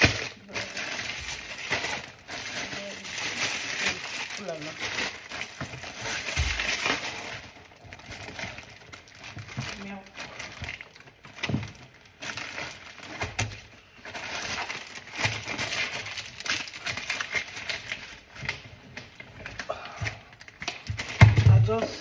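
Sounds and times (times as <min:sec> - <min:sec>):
shopping bag rustling: 0:00.0 - 0:22.0.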